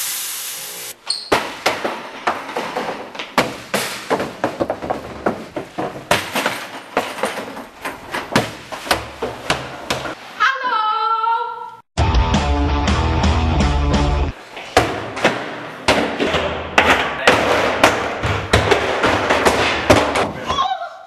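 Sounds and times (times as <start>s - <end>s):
plastic trash cans kicked along floor: 1.4s - 10.2s.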